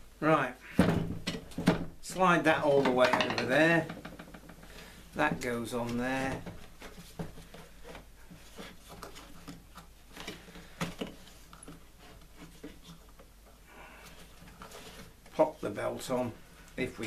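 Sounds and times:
plastic parts clicking and knocking: 2.7s - 4.7s.

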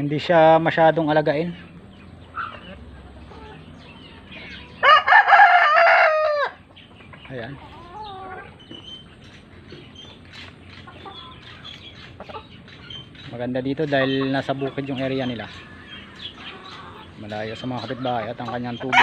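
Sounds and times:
hens clucking: 0.0s - 19.0s
rooster crowing: 4.7s - 6.6s.

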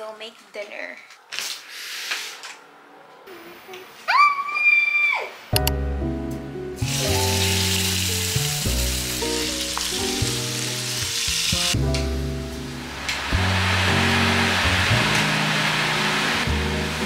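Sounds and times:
background music: 5.6s - 17.0s
pork sizzling in oil: 6.8s - 17.0s.

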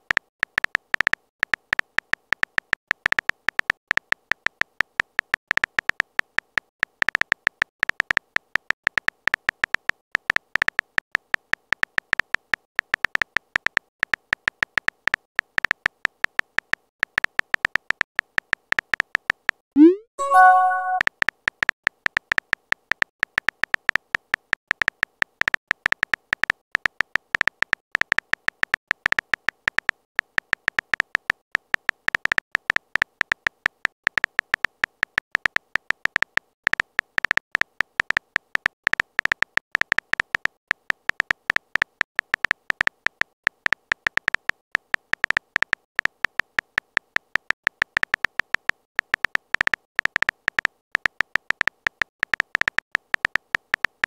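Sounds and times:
keyboard typing clicks: 19.3s - 21.0s, 34.2s - 54.0s.

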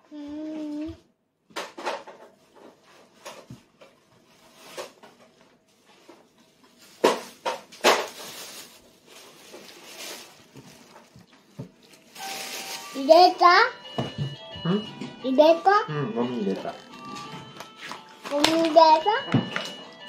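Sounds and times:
faint rustling: 8.0s - 13.0s.

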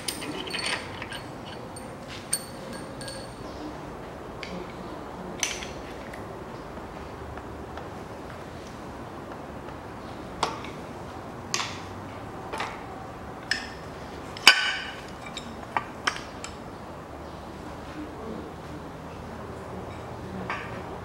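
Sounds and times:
metallic clinks and knocks: 0.0s - 3.6s.

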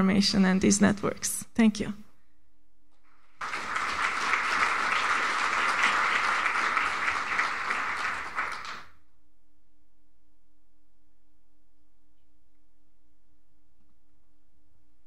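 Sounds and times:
audience applauding: 3.4s - 9.0s.

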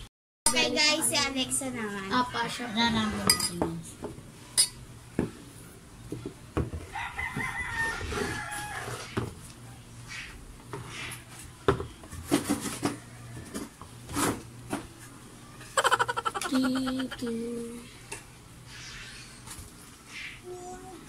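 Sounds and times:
cups and bottle knocking on table: 6.1s - 6.8s
rooster crowing: 6.8s - 9.2s, 12.8s - 13.8s.

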